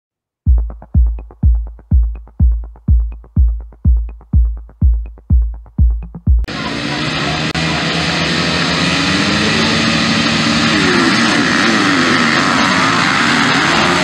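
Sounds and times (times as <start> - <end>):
motocross bikes revving: 6.5 - 14.0.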